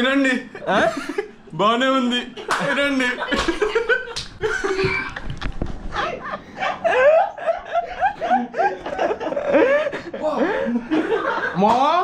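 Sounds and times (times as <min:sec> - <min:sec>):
person chuckling: 0:06.1 - 0:10.9.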